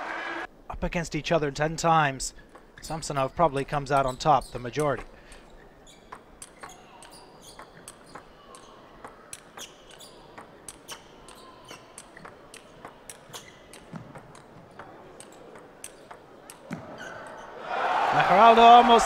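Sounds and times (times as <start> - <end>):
table tennis ball clicking: 6.1 - 17.4.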